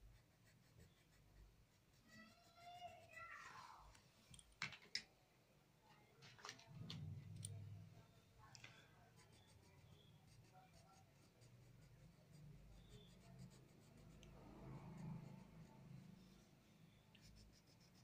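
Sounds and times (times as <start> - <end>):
crayon scratching on paper: 0.0 - 3.4, 9.1 - 16.1, 17.2 - 18.0.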